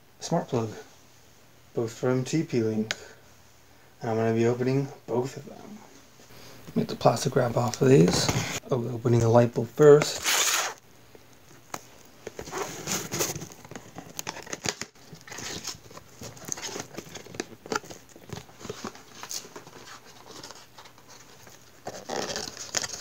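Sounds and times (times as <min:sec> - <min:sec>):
plastic wrap crinkling and tearing: 0:12.4 - 0:23.0.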